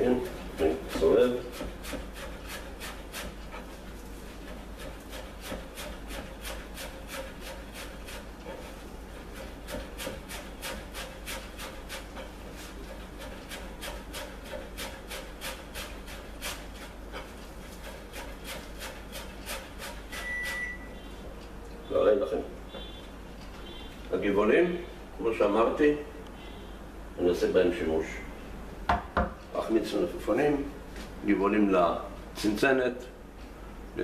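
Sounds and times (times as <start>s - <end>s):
knife chopping on cutting board: 0.6s - 3.4s, 4.5s - 8.7s, 9.3s - 20.6s.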